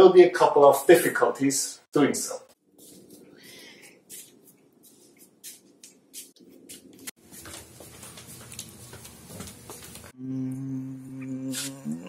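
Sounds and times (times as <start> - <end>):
shuffling: 2.7 - 10.1.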